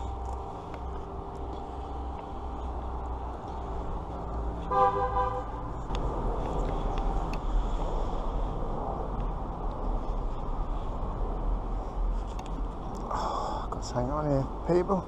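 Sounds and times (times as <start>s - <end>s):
low rumble of traffic: 0.0s - 15.0s
vehicle horn honking: 4.6s - 5.6s.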